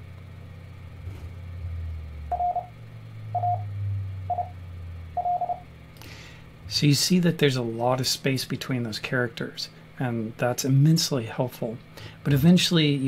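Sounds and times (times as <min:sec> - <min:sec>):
low hum: 0:00.0 - 0:12.4
morse code tone: 0:02.3 - 0:03.7, 0:04.3 - 0:04.6, 0:05.2 - 0:05.6.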